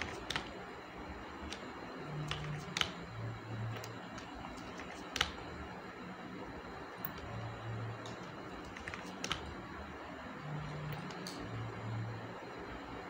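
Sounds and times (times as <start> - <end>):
keyboard and mouse clicks: 0.0 - 0.6, 1.4 - 3.0, 3.7 - 5.4, 8.0 - 9.6.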